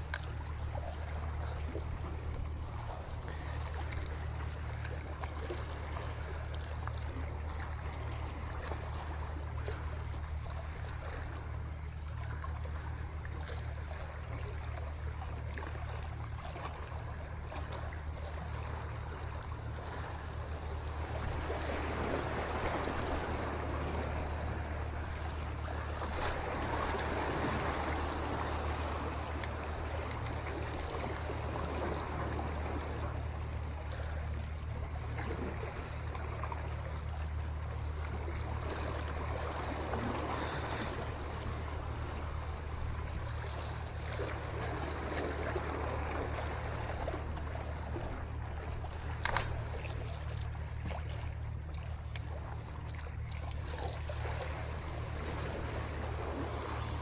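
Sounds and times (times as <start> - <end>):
waves splashing against seawall: 0.0 - 9.8, 38.0 - 57.0
steady low rumble: 0.0 - 57.0.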